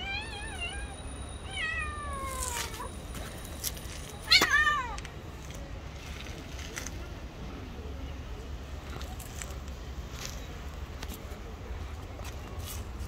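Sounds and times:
cat yowling: 0.0 - 2.9.

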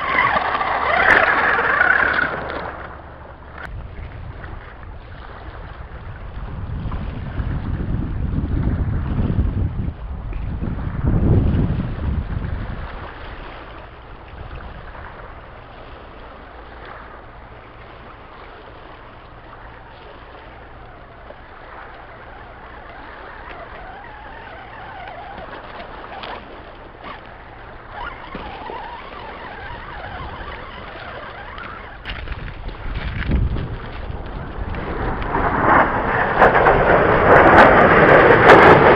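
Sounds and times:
electric motor whine: 0.0 - 3.7, 19.5 - 35.5
low rumble: 31.6 - 38.9.

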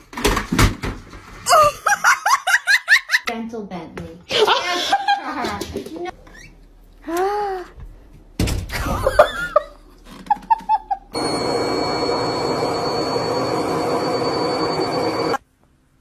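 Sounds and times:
faint high whine: 11.2 - 15.4
washing machine running: 11.2 - 15.4.

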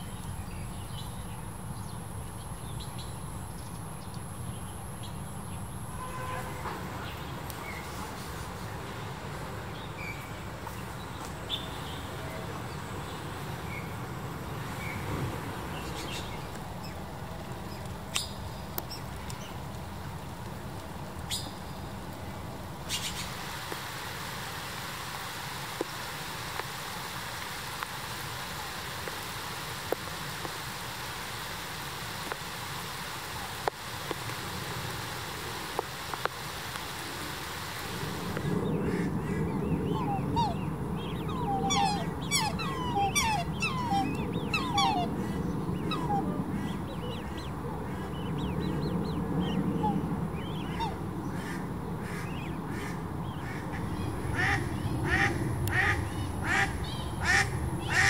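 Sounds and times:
rain falling on a lake: 0.0 - 58.0
cygnets peeping: 39.7 - 51.0.

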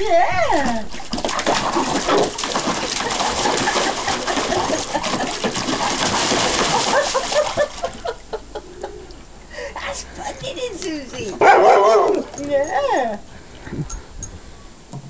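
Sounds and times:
dog splashing water: 0.1 - 9.4
dog low sounds: 11.2 - 12.9.

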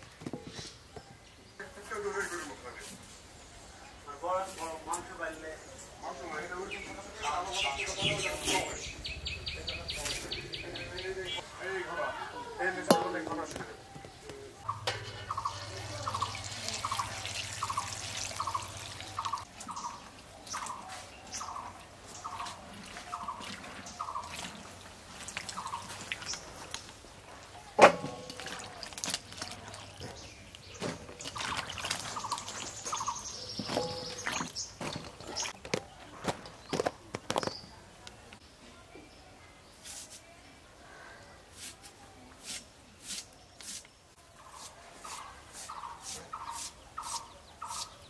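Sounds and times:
water splashing and dripping: 14.6 - 35.8
steel bowl clank: 14.7 - 17.5.

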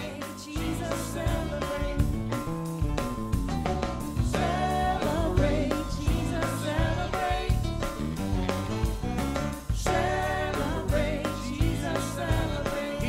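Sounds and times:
person singing: 0.0 - 2.5
bass guitar: 0.0 - 13.0
drums: 0.0 - 13.0
guitar: 0.0 - 13.0.

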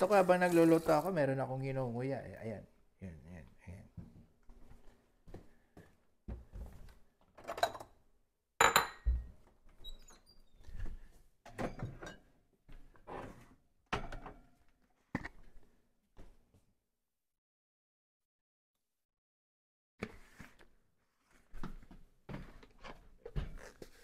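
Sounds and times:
kitchen containers knocking and clinking: 8.6 - 9.4.

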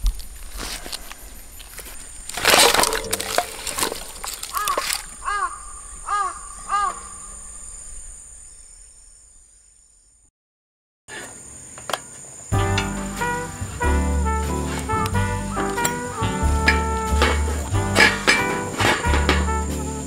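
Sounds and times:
dry branches rustling and crunching: 0.0 - 5.6, 12.6 - 20.0
crow cawing: 4.4 - 7.6.

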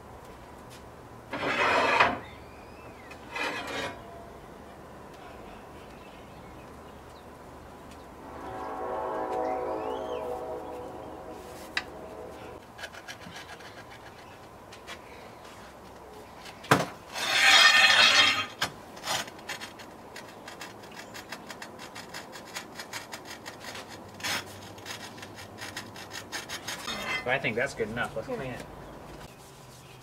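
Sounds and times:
tile scraping: 1.3 - 2.2, 3.3 - 4.0, 17.1 - 19.8.

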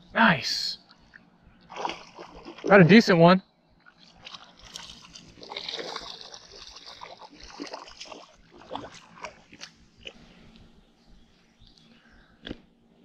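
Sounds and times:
fish splashing in water: 1.7 - 2.8, 3.8 - 10.2.

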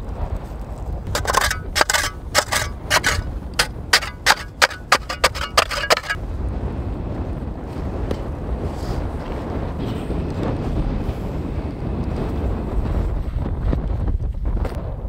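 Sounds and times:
wind rumble on microphone: 0.0 - 15.0
shovel scraping snow and ice: 1.1 - 6.2.

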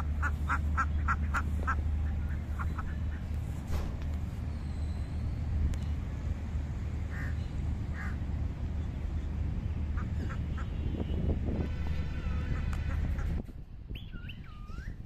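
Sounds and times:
ducks quacking: 0.0 - 3.3, 9.9 - 10.8, 11.7 - 13.4
steady low rumble: 0.0 - 15.0.

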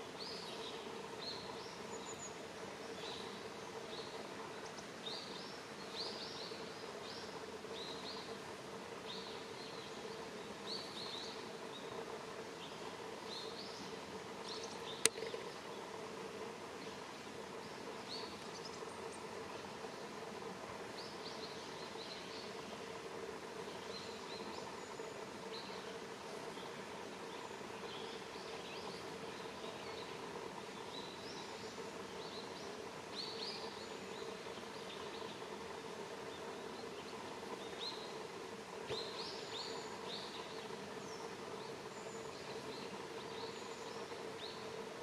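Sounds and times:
small birds chirping: 0.0 - 45.0
steady hiss: 0.0 - 45.0
sharp click: 15.0 - 15.4.

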